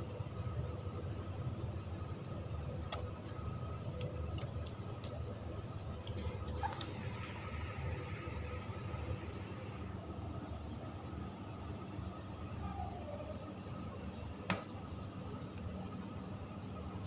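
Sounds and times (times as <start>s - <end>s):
steady low hum: 0.0s - 17.0s
puppies suckling wet clicks: 1.6s - 7.9s.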